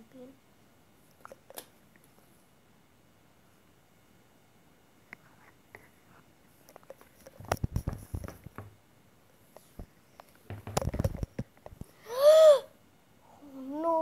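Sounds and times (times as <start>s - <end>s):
plastic toys tapping on tiled floor: 7.4s - 8.8s, 10.5s - 11.8s.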